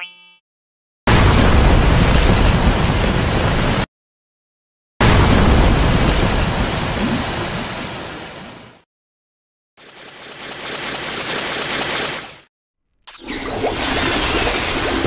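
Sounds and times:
rushing flood water: 0:05.1 - 0:08.8, 0:09.8 - 0:12.4.

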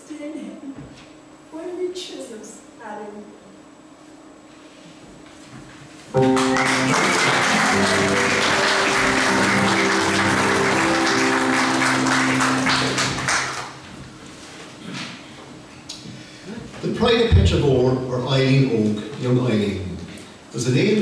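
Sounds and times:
audience applauding: 0:06.2 - 0:14.0
music with held chords: 0:06.2 - 0:14.1.

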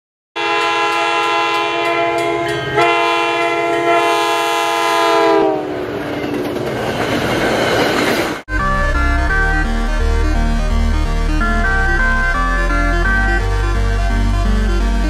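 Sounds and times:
train horn blowing: 0:00.4 - 0:05.8
rushing of passing train cars: 0:00.4 - 0:09.4
crossing bell ringing: 0:01.7 - 0:04.0.

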